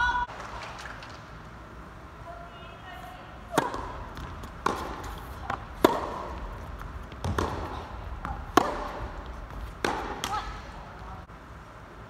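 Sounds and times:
racket striking tennis ball: 0:03.5 - 0:11.1
tennis ball bouncing: 0:03.5 - 0:11.3.

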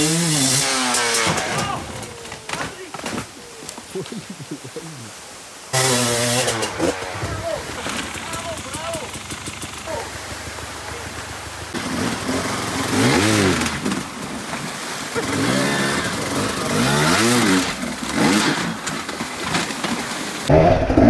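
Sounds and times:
dirt bike engine revving: 0:00.0 - 0:02.3, 0:05.7 - 0:21.0
flowing water rushing: 0:01.6 - 0:20.5.

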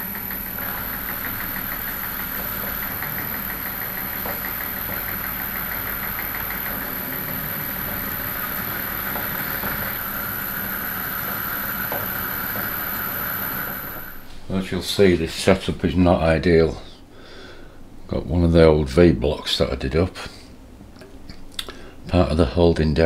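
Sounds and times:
fast even ticking: 0:00.0 - 0:12.9
milling machine spindle drone: 0:00.0 - 0:14.4.

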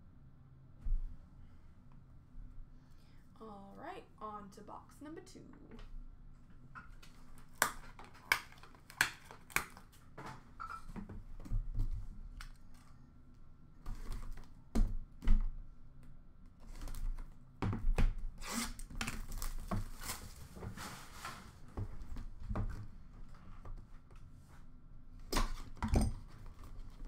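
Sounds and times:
plastic wrap crinkling and tearing: 0:07.3 - 0:10.0, 0:18.4 - 0:20.6.

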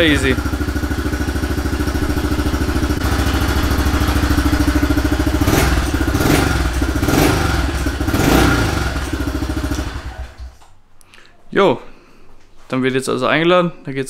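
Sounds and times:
engine revving: 0:00.0 - 0:10.6
motorcycle engine idling: 0:00.0 - 0:10.6.

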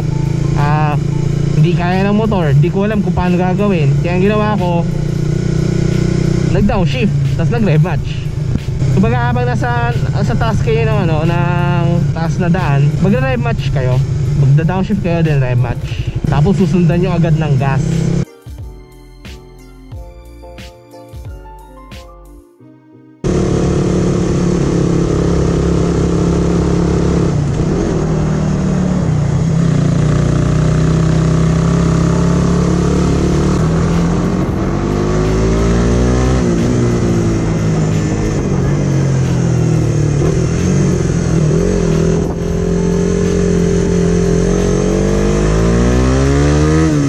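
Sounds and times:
motorcycle engine revving uphill: 0:00.0 - 0:18.2, 0:23.2 - 0:47.0.

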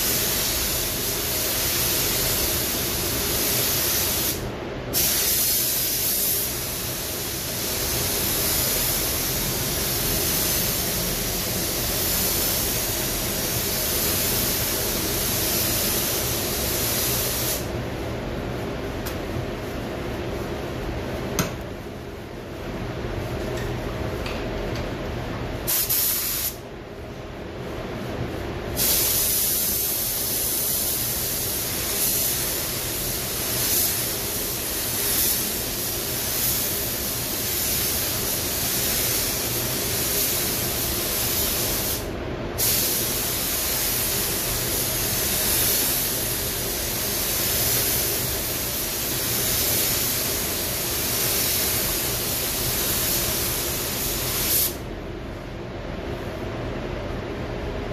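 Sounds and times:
paint spray gun hissing: 0:00.0 - 0:04.4, 0:05.0 - 0:17.7, 0:25.7 - 0:26.6, 0:28.8 - 0:54.8
steady low hum: 0:00.0 - 0:57.9.

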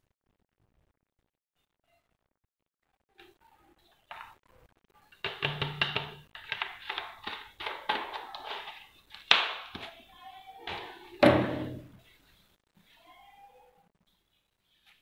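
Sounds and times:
plastic taps clicks and rustles: 0:05.2 - 0:09.9.

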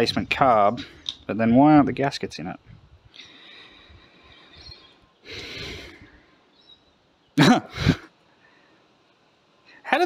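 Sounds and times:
man breathing out through nose: 0:03.1 - 0:06.5.

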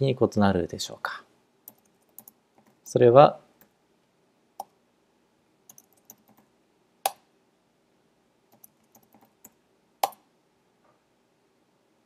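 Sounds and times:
typing on keyboard: 0:01.7 - 0:02.8, 0:05.7 - 0:06.5, 0:08.5 - 0:10.2
sharp keyboard click: 0:05.7 - 0:06.5.

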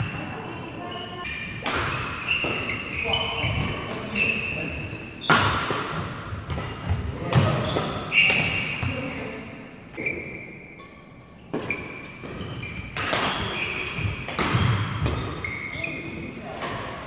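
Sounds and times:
shoe squeaks on court floor: 0:00.0 - 0:05.6, 0:07.5 - 0:08.9, 0:10.0 - 0:16.4
racket hitting shuttlecock: 0:01.5 - 0:02.9, 0:05.2 - 0:09.0, 0:11.5 - 0:15.6.

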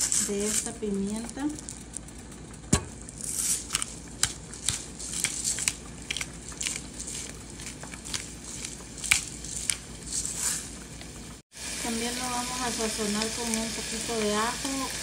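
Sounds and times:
faint high sizzle: 0:00.0 - 0:15.0
beef frying in a pan: 0:03.0 - 0:15.0.

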